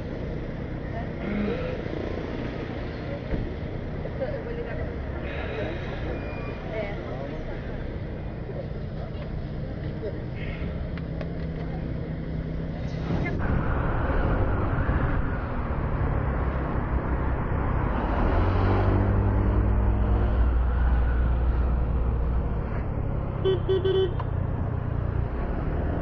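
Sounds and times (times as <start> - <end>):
road and wind noise: 0.0 - 26.0
horn toots: 23.4 - 24.2.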